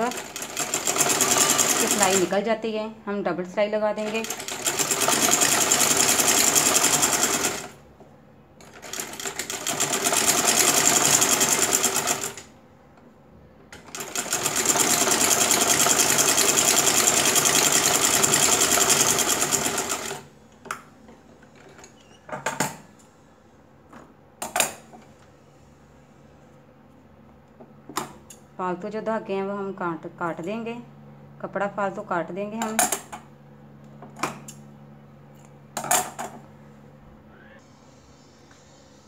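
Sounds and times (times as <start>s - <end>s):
sewing machine stitching: 0.0s - 2.3s, 4.0s - 7.8s, 8.6s - 12.5s, 13.8s - 20.3s.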